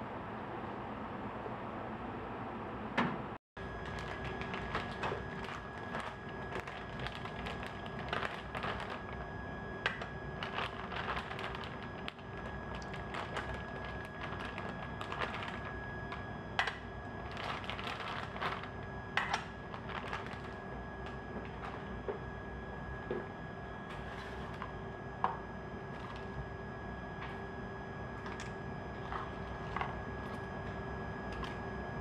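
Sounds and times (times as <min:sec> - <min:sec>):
equipment hum: 0:00.0 - 0:32.0
faint high whine: 0:03.6 - 0:32.0.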